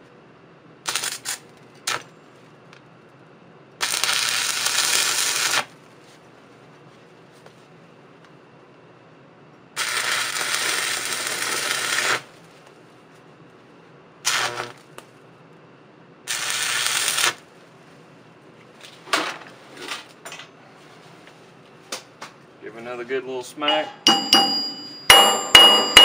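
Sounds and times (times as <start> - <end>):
welding arc crackling: 0.9 - 2.1, 3.8 - 5.7, 9.8 - 12.3, 14.2 - 15.0, 16.3 - 17.4.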